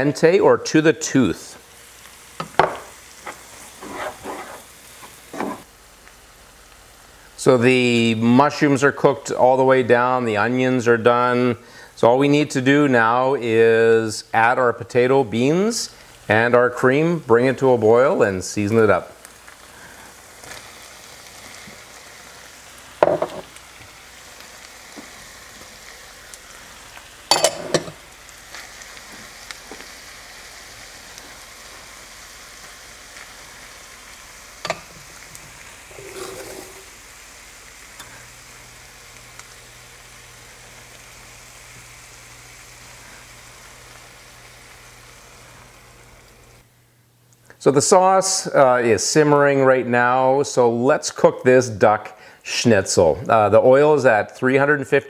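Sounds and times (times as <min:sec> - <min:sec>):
vegetables sizzling in a pan: 0:00.0 - 0:55.0.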